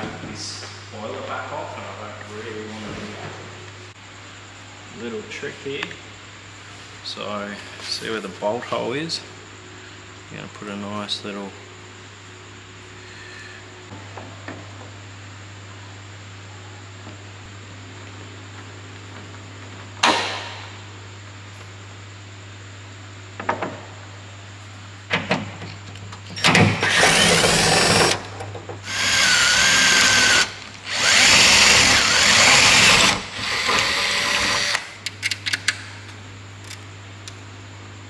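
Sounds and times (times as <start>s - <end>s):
cordless drill drilling: 26.4s - 28.2s, 28.9s - 34.8s.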